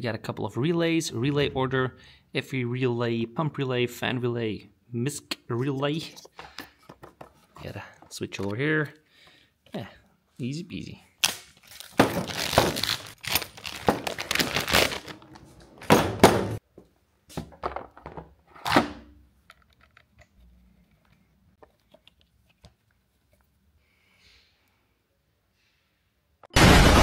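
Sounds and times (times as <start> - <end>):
plastic bags tearing and crinkling: 11.2 - 15.5.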